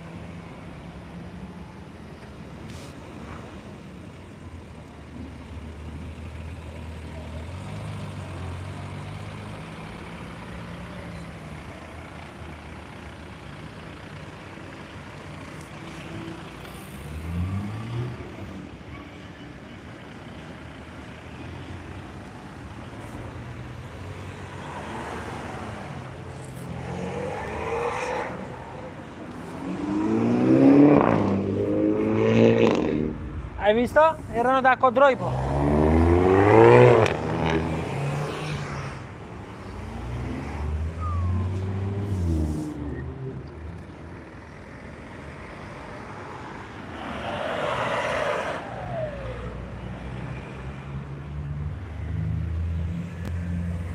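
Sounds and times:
cars driving past: 0.0 - 53.9
car engine accelerating: 35.1 - 44.0.

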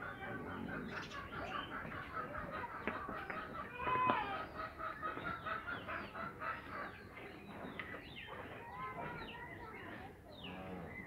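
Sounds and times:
chickens clucking: 0.0 - 11.0.

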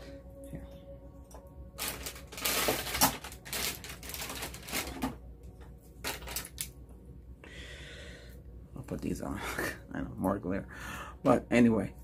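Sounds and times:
objects rustling and clattering: 1.8 - 6.8.

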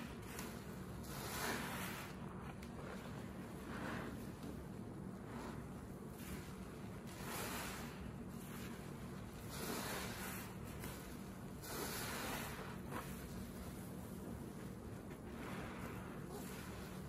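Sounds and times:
sponge squishing in soapy water: 0.0 - 17.0.

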